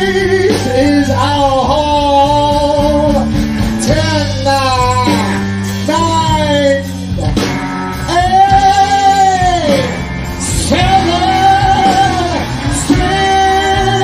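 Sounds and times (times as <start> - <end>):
steady bass line: 0.0 - 14.0
person singing long sliding notes: 8.0 - 14.0.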